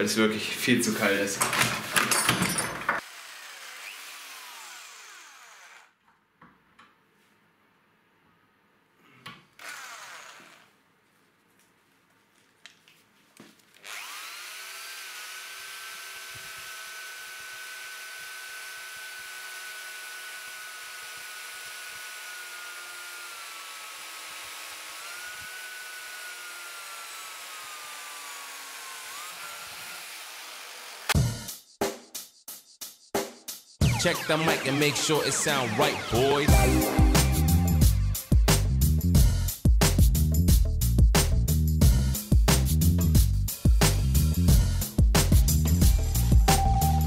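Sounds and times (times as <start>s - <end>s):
electric drill boring through metal: 2.0s - 6.0s, 9.6s - 10.7s, 13.8s - 31.2s, 43.5s - 44.3s.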